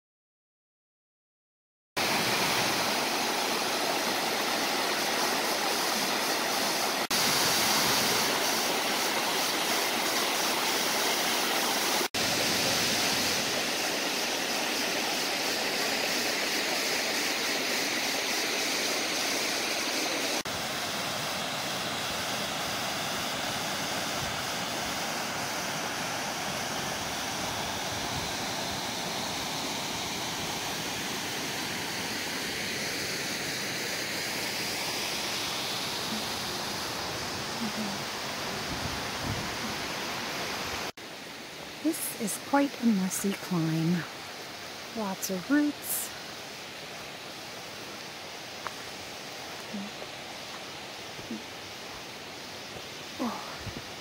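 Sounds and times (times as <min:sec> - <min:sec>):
brook flowing over rocks: 0:02.0 - 0:21.0
waterfall rushing: 0:02.0 - 0:54.0.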